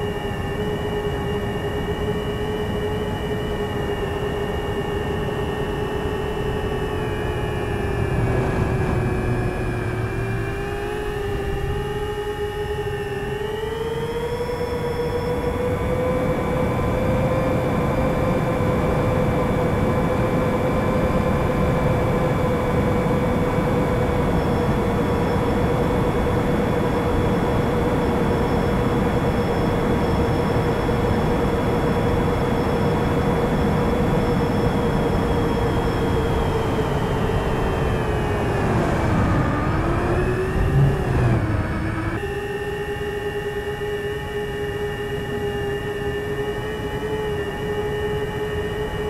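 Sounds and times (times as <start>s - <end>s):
drone motors whining: 0.0s - 49.0s
rush of air noise: 7.6s - 11.4s, 38.5s - 42.2s.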